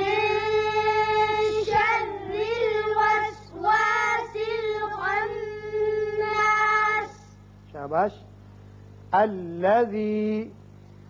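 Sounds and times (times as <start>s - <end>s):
children chanting: 0.0s - 7.3s.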